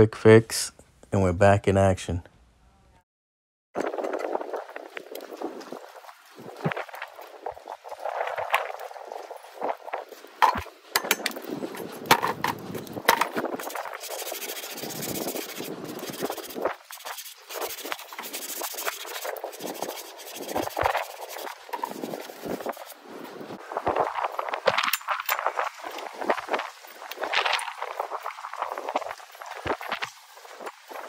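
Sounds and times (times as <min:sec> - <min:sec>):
metal tools clicking and knocking: 0:10.4 - 0:11.4
scraping and rubbing on metal shaft: 0:10.4 - 0:23.0.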